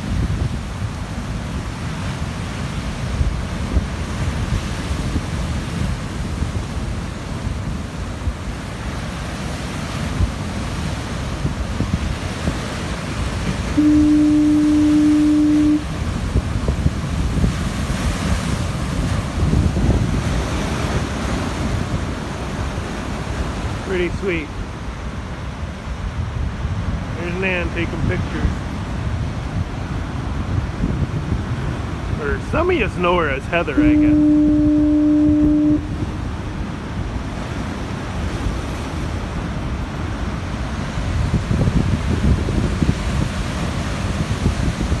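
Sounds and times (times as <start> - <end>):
wind on microphone: 0.0 - 24.0, 25.0 - 45.0
surf crashing on rocks: 0.0 - 45.0
foghorn blast: 13.5 - 16.1, 33.6 - 36.2.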